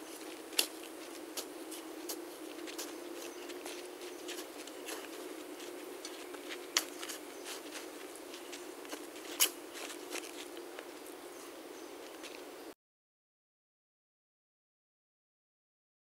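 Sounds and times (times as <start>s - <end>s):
faint steady hum: 0.0s - 12.8s
shovel scraping dirt: 4.3s - 10.5s.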